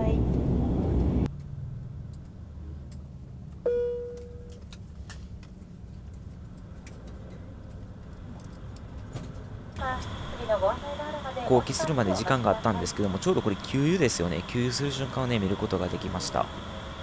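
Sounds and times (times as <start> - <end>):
low cabin hum: 0.0 - 17.0
cabin chime ding: 3.7 - 4.5.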